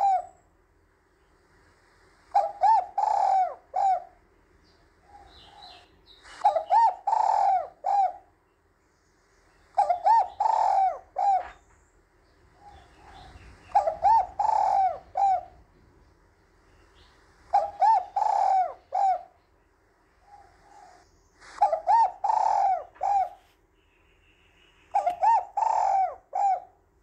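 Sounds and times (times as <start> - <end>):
dove cooing: 0.0 - 0.4, 2.3 - 4.3, 5.0 - 8.4, 9.7 - 11.7, 12.5 - 16.0, 16.9 - 19.4, 20.2 - 23.5, 24.9 - 26.9.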